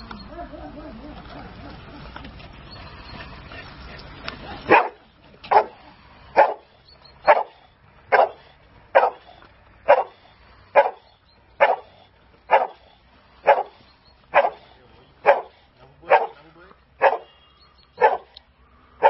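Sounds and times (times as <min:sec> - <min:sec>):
dog barking: 0:04.7 - 0:05.8, 0:06.4 - 0:08.4, 0:09.0 - 0:09.3, 0:09.9 - 0:10.2, 0:10.8 - 0:11.9, 0:12.5 - 0:12.8, 0:13.4 - 0:16.4, 0:17.0 - 0:17.4, 0:18.0 - 0:18.4.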